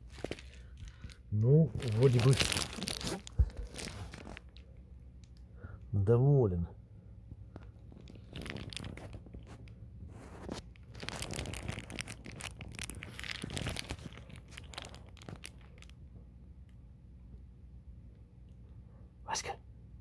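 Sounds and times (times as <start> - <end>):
foil insulation crinkling: 0.0 - 4.6, 7.5 - 16.0.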